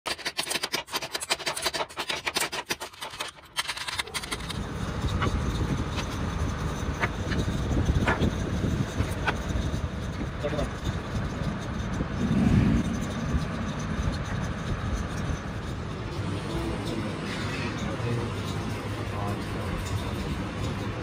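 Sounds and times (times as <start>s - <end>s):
steady low rumble: 4.3s - 21.0s.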